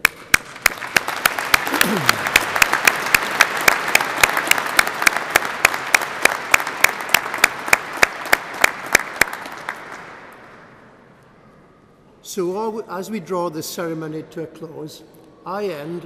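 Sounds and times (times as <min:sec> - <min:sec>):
audience applauding: 0:00.0 - 0:10.4
loud steady hand claps: 0:00.0 - 0:10.4.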